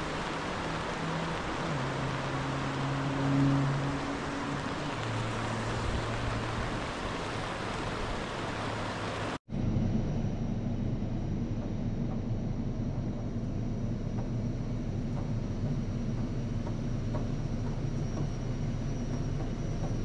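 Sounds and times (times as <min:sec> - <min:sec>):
rain: 0:00.0 - 0:09.4
river rapids: 0:00.0 - 0:09.4
low droning hum: 0:00.0 - 0:20.0.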